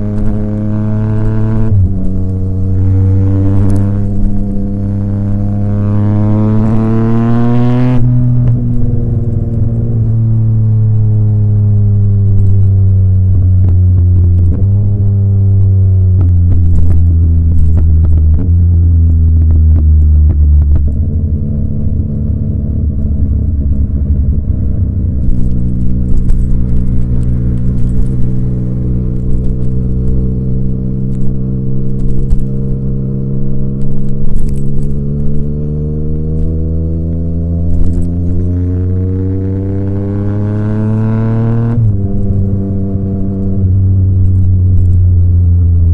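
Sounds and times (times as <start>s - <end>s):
motorcycle engine revving: 0.0s - 45.9s
exhaust crackles: 8.0s - 39.7s.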